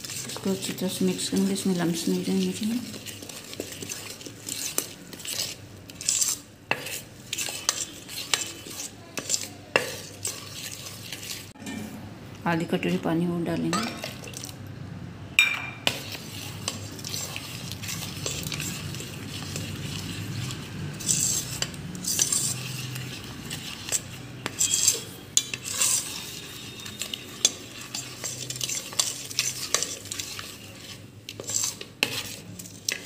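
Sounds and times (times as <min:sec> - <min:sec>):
spoon swishing batter: 0:00.0 - 0:11.6, 0:13.8 - 0:14.6, 0:15.8 - 0:33.0
spoon clinking against pot: 0:13.7 - 0:14.2, 0:15.4 - 0:16.0, 0:24.4 - 0:30.0.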